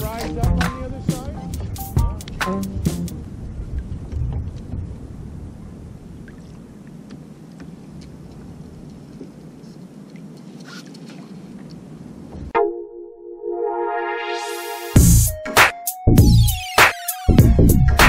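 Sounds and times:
water around a kayak: 0.0s - 12.5s
wind: 0.0s - 12.6s.

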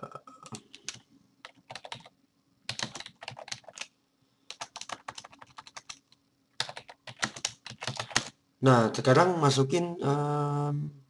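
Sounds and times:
typing on computer keyboard: 0.5s - 2.1s, 2.7s - 3.9s, 4.5s - 8.4s.

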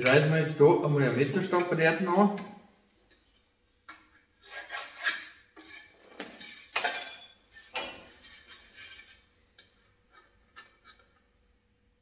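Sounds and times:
metal scraping and rustling: 4.4s - 9.4s.

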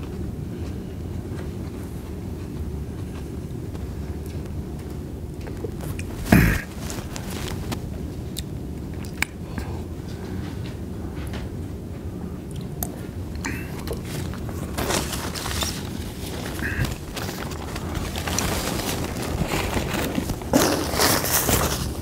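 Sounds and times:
low room rumble: 0.0s - 22.0s
paper wrappers crinkling: 5.5s - 8.0s, 13.4s - 22.0s.

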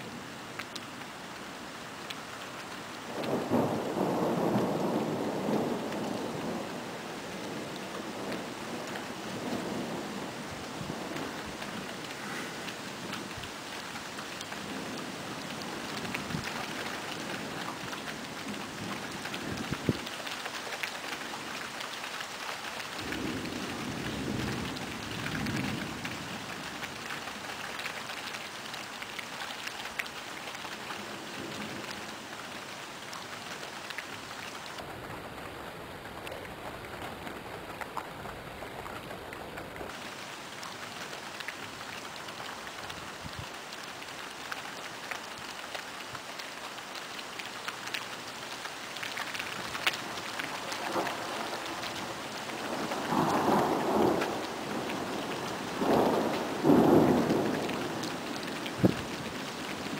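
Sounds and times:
steady rain falling: 0.0s - 59.9s
sharp raindrop hits: 49.0s - 59.9s
low thunder rumble: 52.6s - 59.9s.

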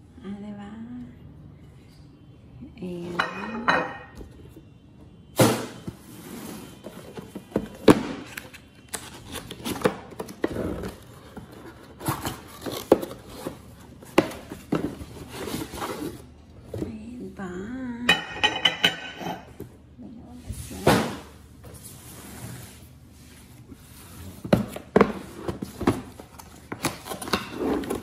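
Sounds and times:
cardboard boxes scraping and rustling: 5.9s - 16.4s, 20.6s - 28.0s.

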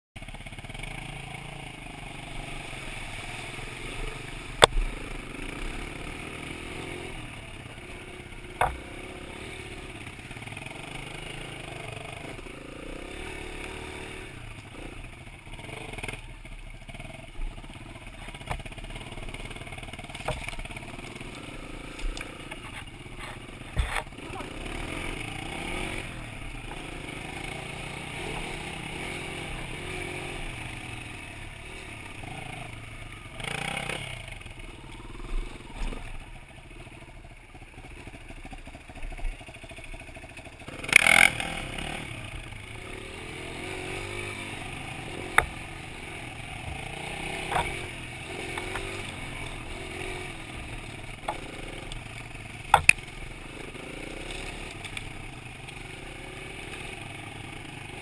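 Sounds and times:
dirt bike engine revving: 0.2s - 58.0s
sharp knocks: 8.6s - 8.8s.

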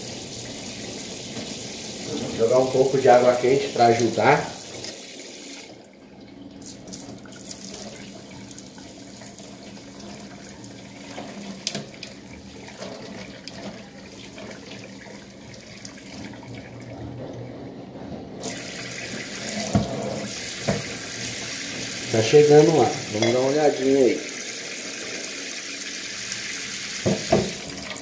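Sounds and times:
tap water spraying into sink: 0.0s - 5.7s, 18.4s - 28.0s
hot water splashing on ice: 2.0s - 5.6s.

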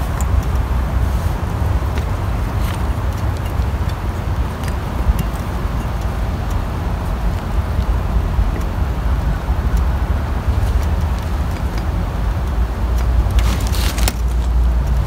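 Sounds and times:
steady low rumble: 0.0s - 15.0s
scraping rustle: 13.3s - 14.6s.

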